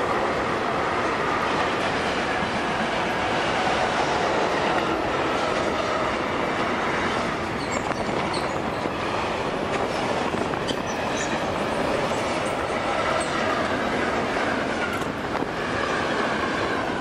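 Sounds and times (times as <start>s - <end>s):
train wheels rumbling on rails: 0.0s - 17.0s
short high squeaks: 7.6s - 8.9s.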